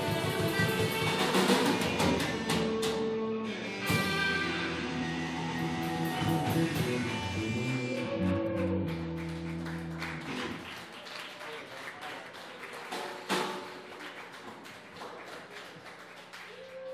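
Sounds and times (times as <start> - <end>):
rock band final chord: 0.0 - 10.6
light applause: 7.8 - 16.9.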